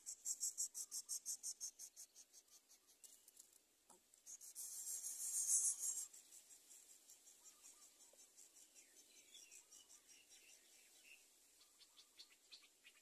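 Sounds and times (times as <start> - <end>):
nestlings begging buzz: 4.3 - 6.4.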